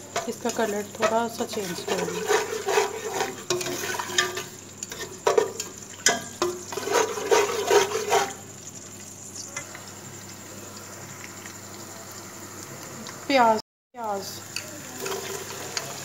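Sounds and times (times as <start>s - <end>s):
spatula scraping a metal pot: 0.0s - 8.4s
food sizzling in hot oil: 0.0s - 16.0s.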